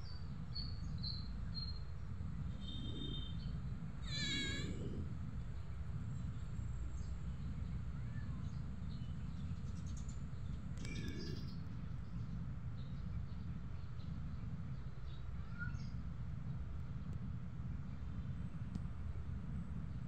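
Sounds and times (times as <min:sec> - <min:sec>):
steady low rumble: 0:00.0 - 0:20.0
cat meowing: 0:04.1 - 0:04.8.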